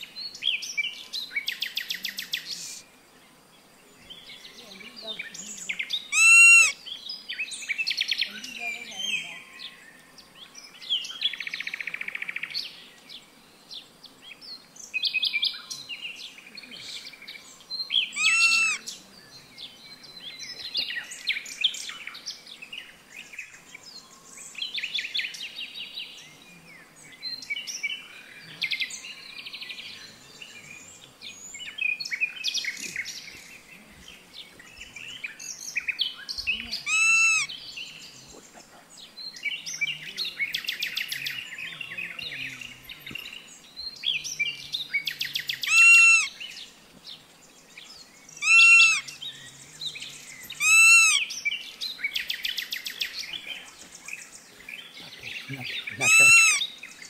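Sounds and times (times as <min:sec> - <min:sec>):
birds chirping and trilling: 0:00.0 - 0:57.0
ringing bird calls: 0:05.4 - 0:06.8, 0:17.8 - 0:19.1, 0:35.9 - 0:38.5, 0:44.2 - 0:46.4, 0:48.3 - 0:49.2, 0:50.2 - 0:52.8, 0:55.1 - 0:56.8.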